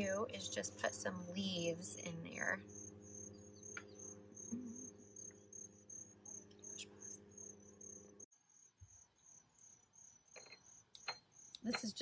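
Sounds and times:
low steady hum: 0.0 - 9.0
crickets chirping: 0.6 - 12.0.

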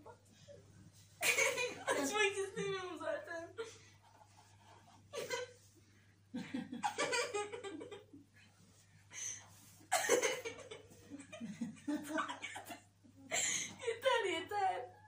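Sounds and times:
girl laughing and giggling: 1.2 - 2.7, 6.5 - 8.2, 10.0 - 14.1.

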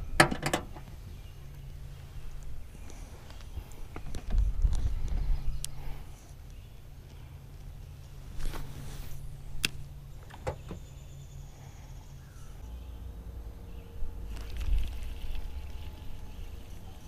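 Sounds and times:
low rumble: 0.0 - 8.4, 10.8 - 17.0
rustling: 8.1 - 9.6.

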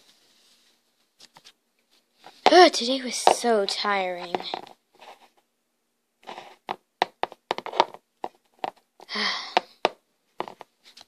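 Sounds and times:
plastic toys clicking on floor: 2.4 - 4.8, 6.6 - 11.0.

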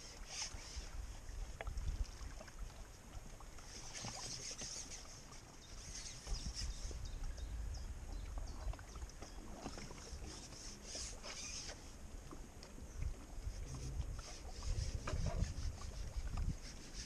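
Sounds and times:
wind rumble on microphone: 0.0 - 2.5, 5.7 - 10.5, 11.9 - 17.0
light ticks and splashes: 0.0 - 17.0
small waves lapping: 0.0 - 17.0.

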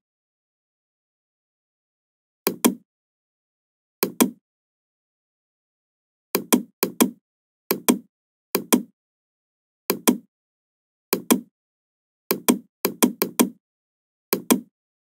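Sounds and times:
computer mouse clicking: 2.5 - 2.8, 4.0 - 4.4, 9.9 - 10.3, 11.2 - 11.5, 12.3 - 13.6, 14.3 - 14.7.

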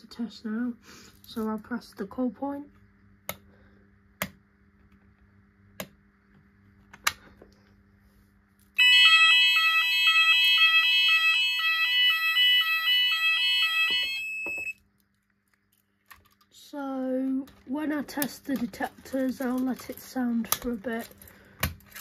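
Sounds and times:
fire alarm warbling: 8.8 - 14.8.

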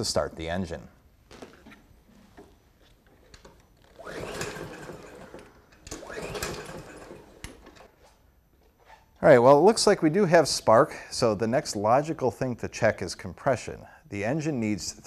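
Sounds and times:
lawn mower starter rope pulls: 3.0 - 8.2
engine turning over: 3.8 - 7.9.

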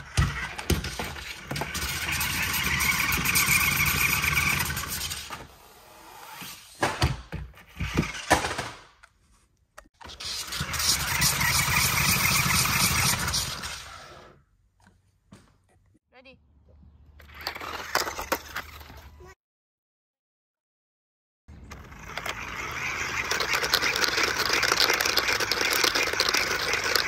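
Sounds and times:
toy electric motors whirring: 0.0 - 5.6, 7.6 - 8.6, 10.0 - 14.4, 17.2 - 19.4, 21.6 - 27.0.

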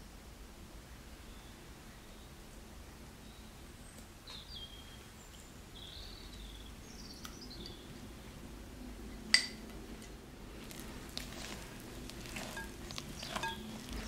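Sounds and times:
faint bird chirps: 3.2 - 8.3
glass jar clinking on glass bowl: 12.3 - 14.0.

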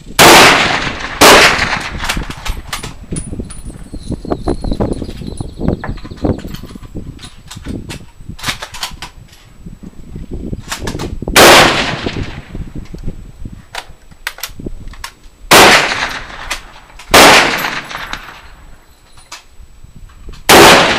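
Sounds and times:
loud rifle shots with echo: 0.2 - 2.1, 11.4 - 12.5, 15.5 - 18.4, 20.5 - 20.9.

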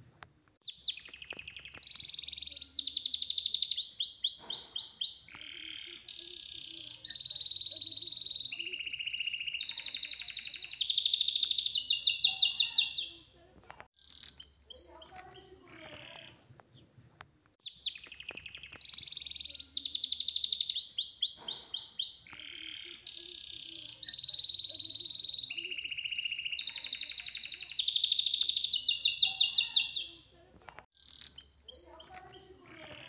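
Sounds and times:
songbirds trilling and chirping: 0.4 - 33.0.

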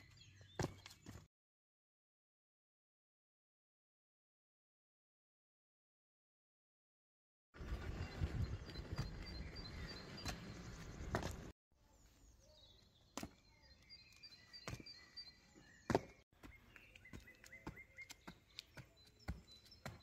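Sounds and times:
sneakers slapping on concrete steps: 0.5 - 1.3, 11.0 - 11.5, 14.2 - 15.0, 15.8 - 20.0.

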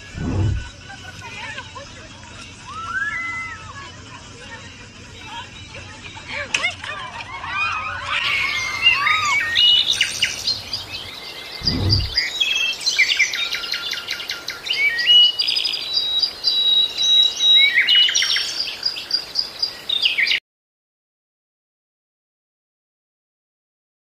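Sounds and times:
songbirds chirping and trilling: 0.0 - 20.4
low thump: 0.1 - 0.7, 11.6 - 12.2.

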